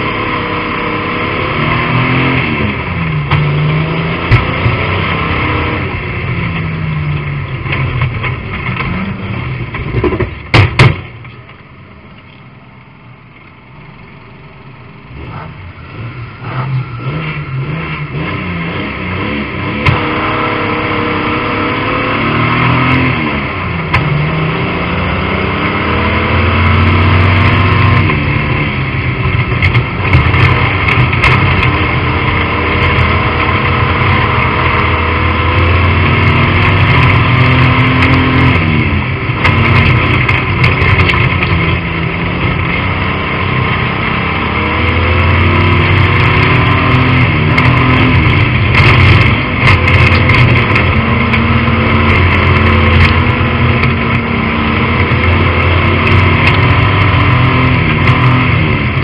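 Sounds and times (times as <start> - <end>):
race car engine running hard: 0.0 - 59.0
sharp knocks: 9.8 - 11.2.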